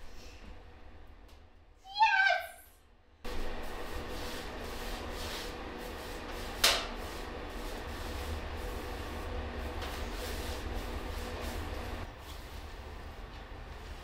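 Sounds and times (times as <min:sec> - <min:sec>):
paintbrush swishing on wood: 0:03.6 - 0:12.7.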